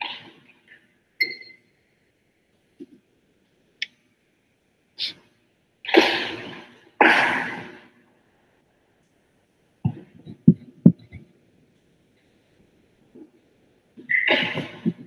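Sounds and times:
breathy bursts like a sneeze: 5.9 - 7.9.

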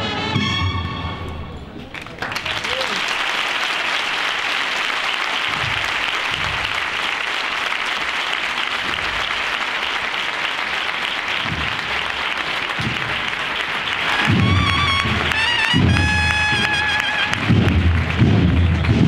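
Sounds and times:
brass band playing: 0.0 - 1.4, 11.4 - 19.0
audience applauding: 1.9 - 19.0.

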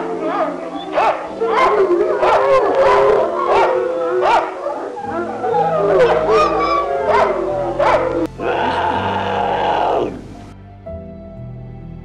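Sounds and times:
background music: 0.0 - 12.0
dog whining and howling: 0.8 - 9.3.

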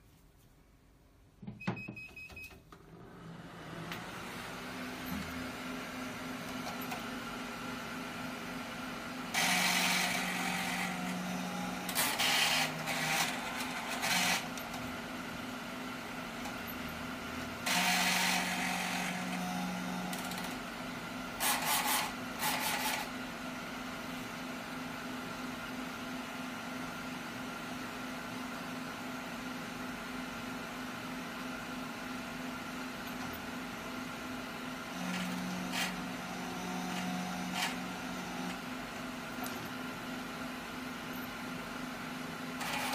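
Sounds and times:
printer steady hum: 2.9 - 42.9
printer motors whirring: 8.6 - 23.3, 33.1 - 42.9.

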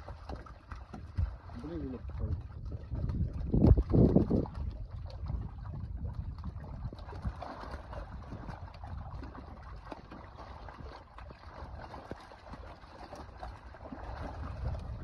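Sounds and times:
tail slaps on water: 0.0 - 2.4, 6.9 - 15.0
fish thrashing and splashing: 0.0 - 15.0
low rumble: 1.2 - 9.6, 14.0 - 15.0.

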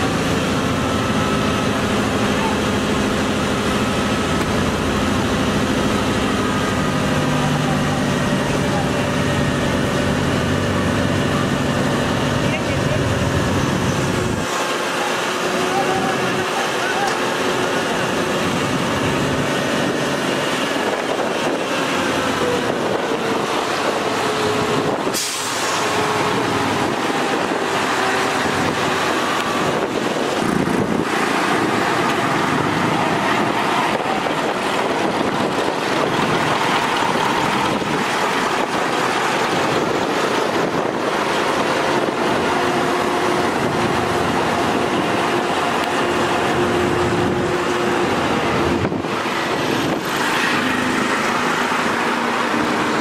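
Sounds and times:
truck diesel engine running: 0.0 - 53.0
sharp hiss: 25.1 - 26.0.

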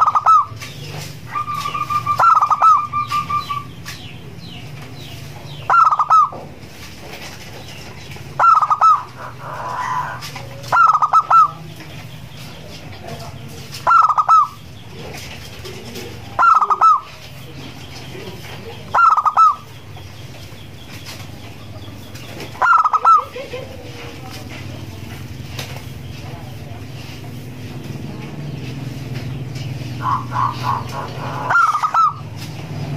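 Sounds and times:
dove cooing: 0.0 - 4.7, 5.5 - 6.6, 8.3 - 11.8, 13.8 - 20.0, 21.2 - 24.8, 29.5 - 32.4.

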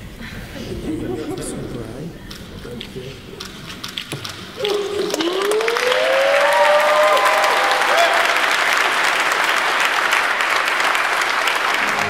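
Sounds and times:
crowd applauding: 2.3 - 12.0
people whooping and cheering: 4.6 - 9.3.

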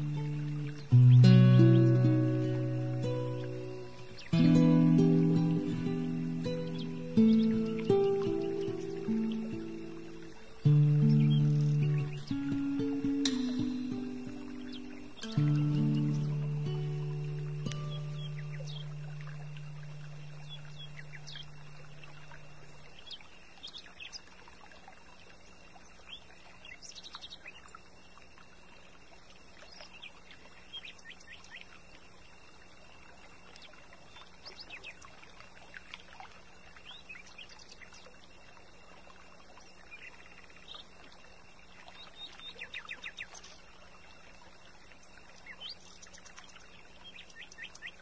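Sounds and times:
low held musical note: 0.0 - 22.4
mountain stream rushing: 0.0 - 22.8
small birds chirping: 0.0 - 24.3, 45.4 - 48.0.

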